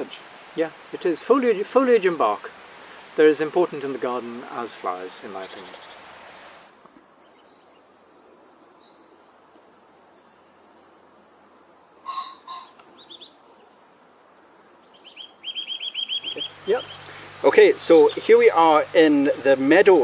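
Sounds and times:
faint outdoor hiss: 0.0s - 20.0s
songbirds singing: 1.5s - 11.0s, 11.8s - 20.0s
bird trill: 12.0s - 13.4s, 14.4s - 17.4s.

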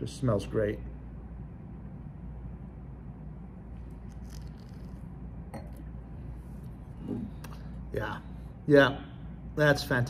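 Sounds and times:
steady low hum: 0.0s - 10.0s
soft sipping: 3.8s - 7.8s.

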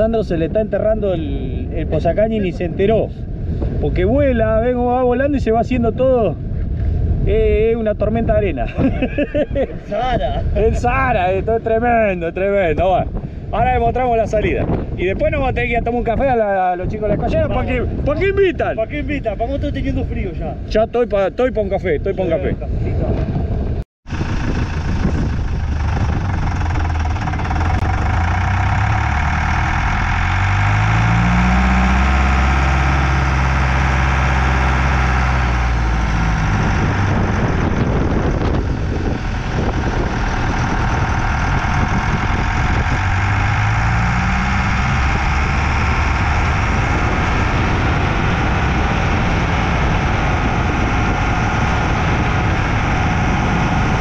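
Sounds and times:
rushing noise: 24.1s - 54.0s
vehicle engine revving: 24.1s - 54.0s.

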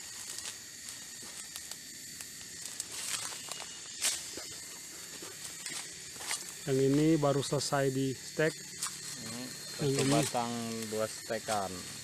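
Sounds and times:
insects hissing: 0.0s - 12.0s.

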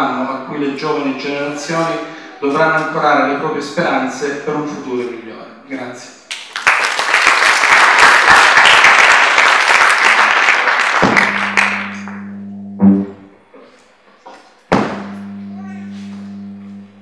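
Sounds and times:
audience applauding: 6.3s - 12.3s
low electrical hum: 10.9s - 17.0s
microphone thump: 11.0s - 13.1s, 14.7s - 16.8s.

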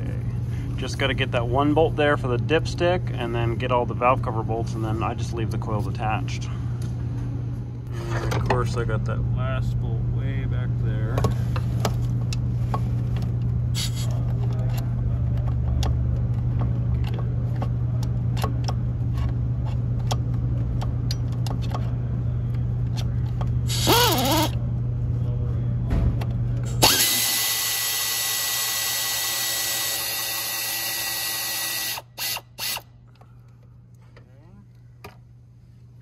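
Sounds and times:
steady low hum: 0.0s - 36.0s
power tool whining: 23.7s - 24.6s, 26.8s - 32.8s.

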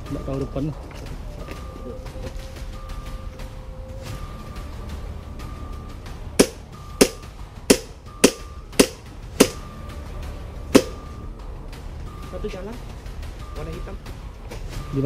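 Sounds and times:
airsoft rifle shots: 6.4s - 9.6s, 10.8s - 11.0s.

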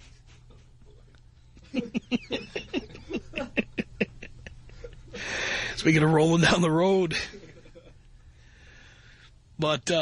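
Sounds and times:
faint studio hum: 0.0s - 10.0s
person laughing: 1.6s - 5.3s.

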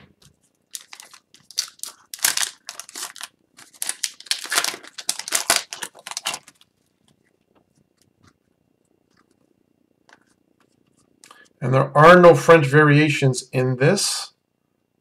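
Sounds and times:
wrapper crinkling and tearing: 0.4s - 7.3s.

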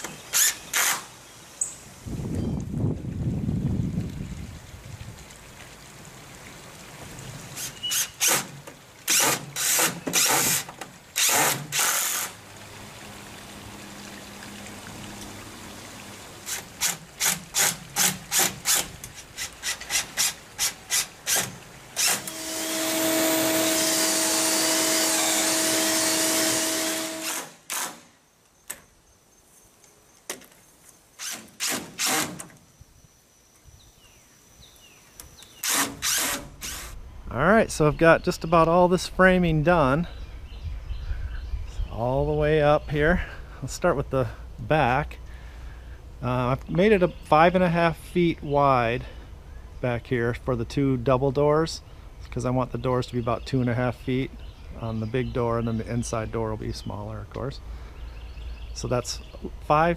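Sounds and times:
cordless drill driving screws: 0.0s - 1.1s, 7.6s - 12.4s, 16.5s - 28.1s, 31.2s - 32.6s, 35.5s - 37.0s.

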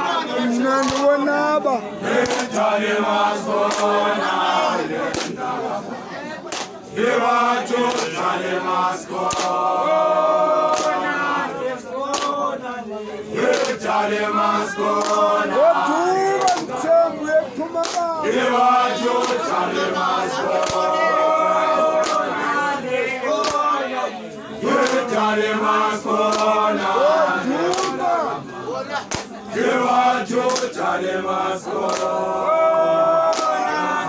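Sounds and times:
crowd singing a chant: 0.0s - 34.0s
hands clapping: 0.7s - 1.3s, 2.1s - 2.7s, 3.4s - 4.4s, 5.0s - 5.5s, 6.4s - 6.9s, 7.6s - 8.4s, 9.1s - 9.7s, 10.6s - 12.5s, 13.4s - 14.0s, 14.8s - 15.5s, 16.2s - 16.9s, 17.8s - 22.7s, 23.3s - 23.8s, 24.7s - 25.3s, 26.1s - 26.7s, 27.6s - 28.2s, 28.9s - 29.5s, 30.3s - 30.9s, 31.7s - 32.2s, 33.2s - 34.0s.

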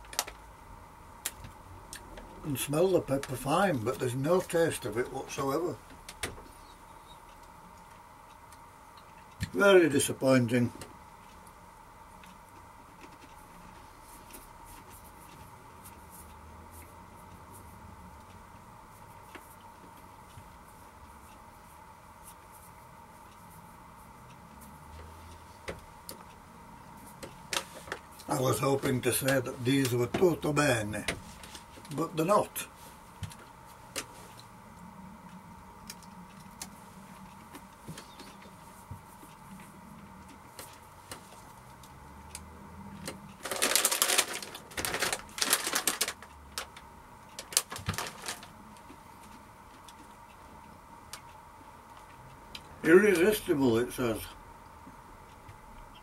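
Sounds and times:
steady hum: 0.0s - 56.0s
faint crackles: 43.4s - 46.8s.

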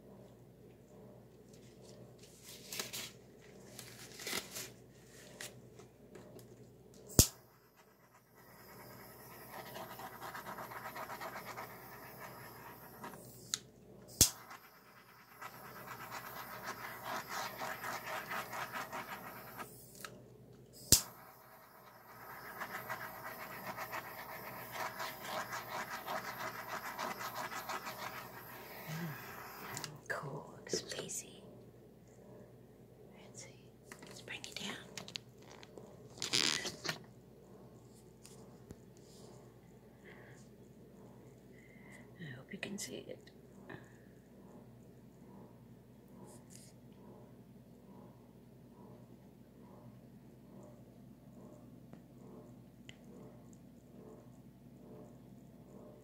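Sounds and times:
torch flame hissing: 7.1s - 20.0s, 20.8s - 30.0s
faint scratches: 7.2s - 20.1s, 20.9s - 31.4s.

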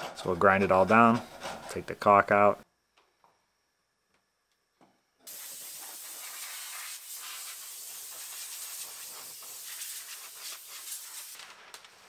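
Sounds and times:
compressed air hissing: 5.3s - 11.4s.

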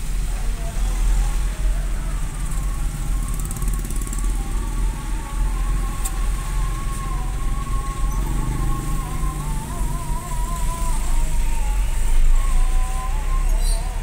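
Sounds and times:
vehicle engine rumbling: 0.0s - 14.0s
wavering high tone: 4.2s - 14.0s.

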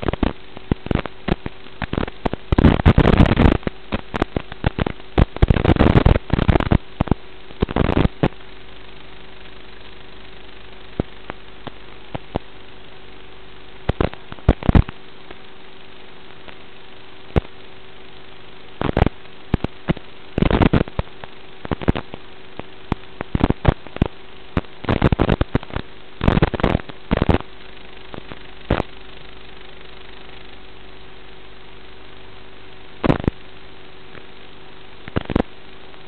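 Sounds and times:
signal crackles and pops: 0.0s - 36.0s
video link hiss and hum: 0.0s - 36.0s.

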